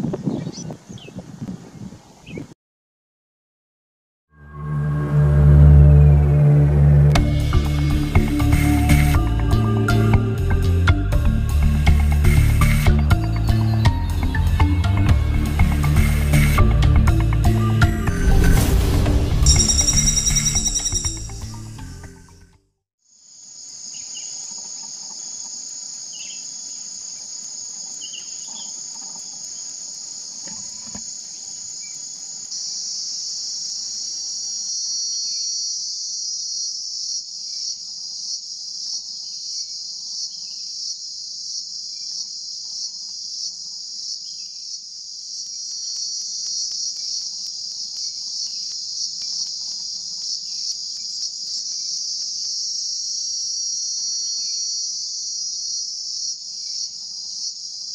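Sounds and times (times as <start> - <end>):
insects droning: 23.1 - 57.9.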